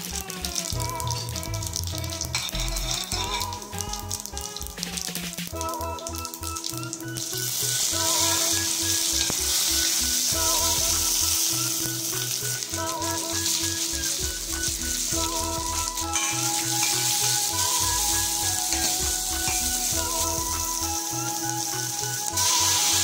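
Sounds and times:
steel spoon stirring onions: 0:00.0 - 0:04.2, 0:07.2 - 0:23.0
background music: 0:00.0 - 0:23.0
leaves sizzling in hot oil: 0:00.0 - 0:23.0.

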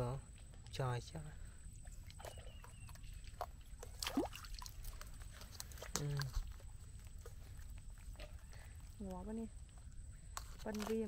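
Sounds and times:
wet mud sloshing: 0:01.8 - 0:08.9.

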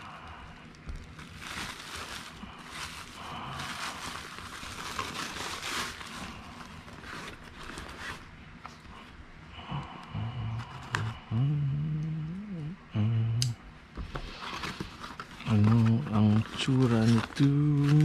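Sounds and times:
plastic pouch crinkling: 0:00.0 - 0:08.4, 0:14.3 - 0:18.0.

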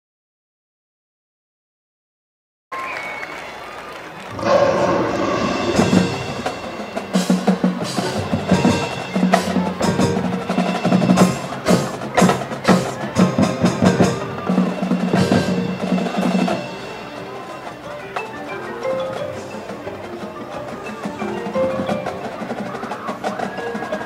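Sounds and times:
marching band held chord: 0:04.2 - 0:18.1
rhythmic drum hits: 0:04.3 - 0:24.0.

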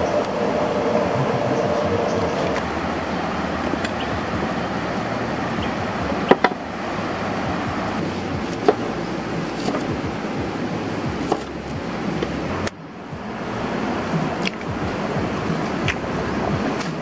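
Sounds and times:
stream flowing: 0:00.0 - 0:17.0
knife striking wooden cutting board: 0:08.4 - 0:10.0, 0:11.2 - 0:11.8.

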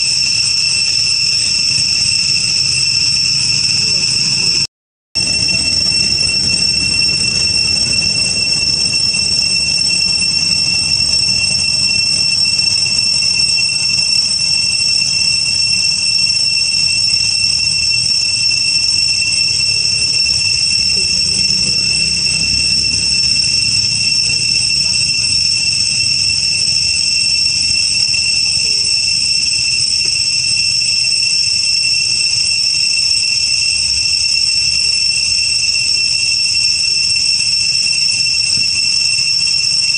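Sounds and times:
insects whining: 0:00.0 - 0:30.4
low rumble: 0:05.2 - 0:13.6, 0:19.5 - 0:26.2.

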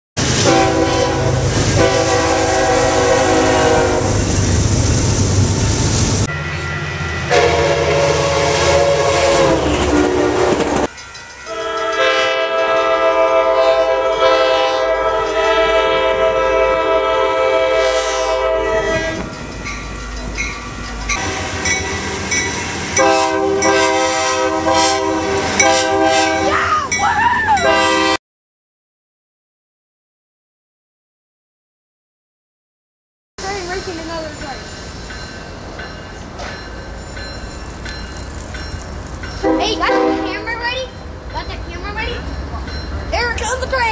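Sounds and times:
freight train rumbling past: 0:00.2 - 0:28.2, 0:33.4 - 0:43.9
locomotive air horn blasts: 0:00.3 - 0:04.3, 0:07.3 - 0:10.8, 0:11.5 - 0:19.3, 0:21.2 - 0:22.3, 0:23.0 - 0:26.6, 0:27.6 - 0:28.2, 0:39.4 - 0:40.7.

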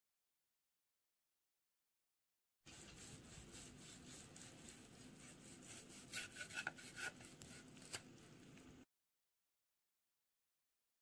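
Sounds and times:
knife sawing through meat: 0:02.7 - 0:07.9.

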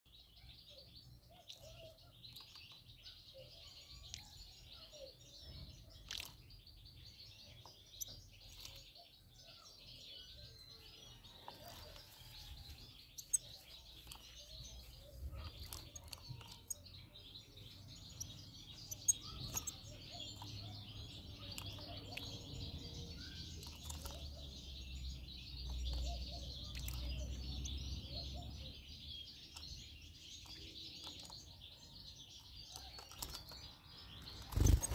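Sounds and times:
songbirds twittering: 0:00.1 - 0:34.9
sharp clicks: 0:18.9 - 0:19.8.

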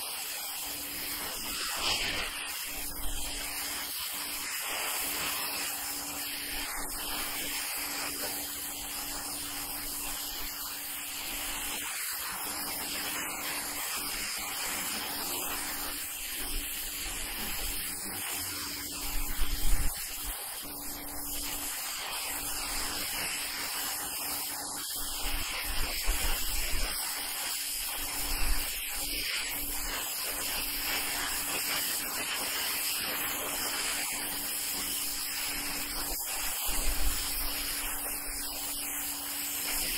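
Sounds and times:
pressure washer water jet hissing: 0:00.0 - 0:39.9.

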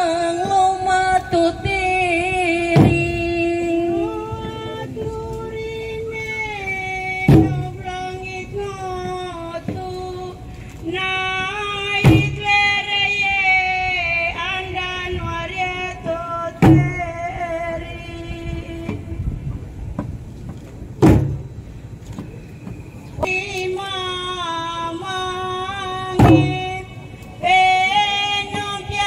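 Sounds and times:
loud drum-like strikes: 0:07.3 - 0:07.8, 0:12.0 - 0:12.5, 0:16.6 - 0:17.0, 0:21.0 - 0:21.4, 0:26.2 - 0:26.7
group singing in unison: 0:25.1 - 0:29.0.

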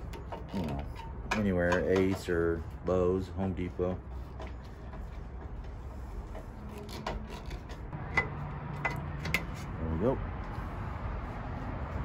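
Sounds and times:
faint scraping and rubbing: 0:00.0 - 0:08.0.

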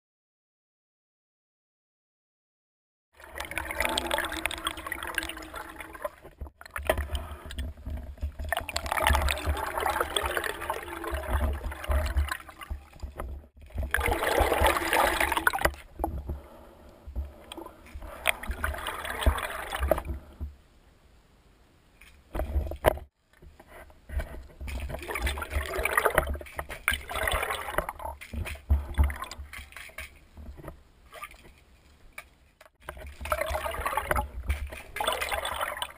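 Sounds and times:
muffled underwater water sloshing: 0:03.2 - 0:20.8, 0:22.0 - 0:35.9
low underwater thumps: 0:06.2 - 0:20.6.

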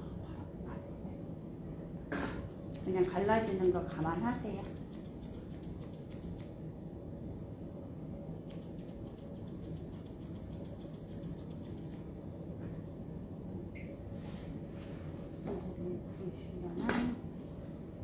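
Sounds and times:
shears snipping fur: 0:02.7 - 0:06.6, 0:08.4 - 0:12.1.

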